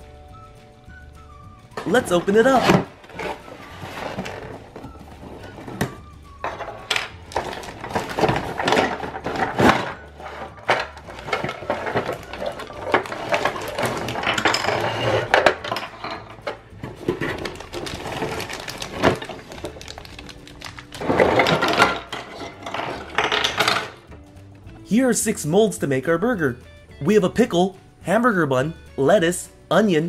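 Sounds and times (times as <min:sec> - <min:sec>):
cardboard packaging rustling: 0:01.8 - 0:16.2, 0:16.8 - 0:23.8
plastic toy parts clattering: 0:01.8 - 0:24.1.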